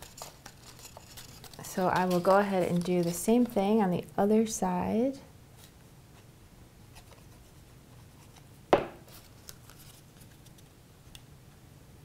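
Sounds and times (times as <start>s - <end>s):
paper ticks and rustles: 0.0s - 3.6s, 9.1s - 11.2s
sharp knock: 8.8s - 9.1s.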